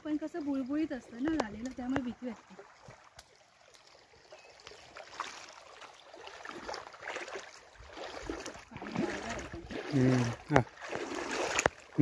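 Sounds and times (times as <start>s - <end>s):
feet wading through water: 0.0s - 12.0s.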